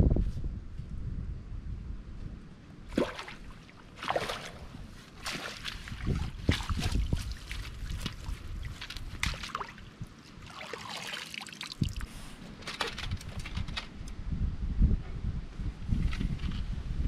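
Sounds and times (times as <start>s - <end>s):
water splashing and sloshing: 2.9s - 13.9s
knocks and rustles: 12.4s - 14.0s.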